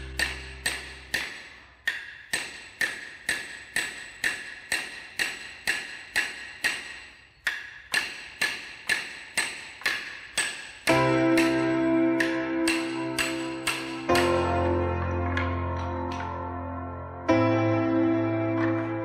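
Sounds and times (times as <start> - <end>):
hammer tapping wooden dowel: 0.0 - 14.5.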